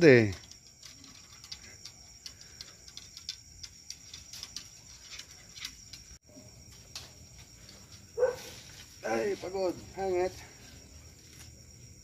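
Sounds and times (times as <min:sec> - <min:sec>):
high insect trill: 0:00.0 - 0:12.0
dog claws clicking on wood: 0:00.4 - 0:06.2.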